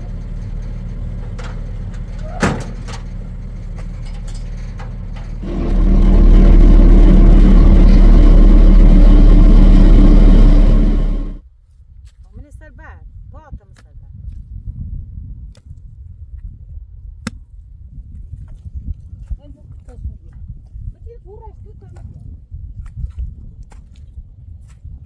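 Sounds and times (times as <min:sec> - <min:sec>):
engine running: 0:00.0 - 0:11.4.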